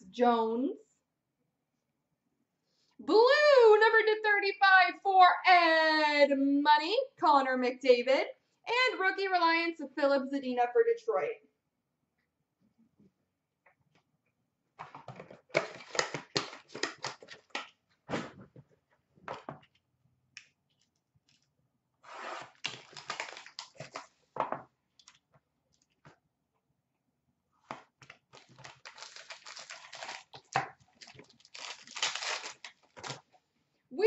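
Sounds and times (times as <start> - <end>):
plastic wrap crinkling: 15.6 - 17.6, 22.4 - 24.2, 28.0 - 33.4.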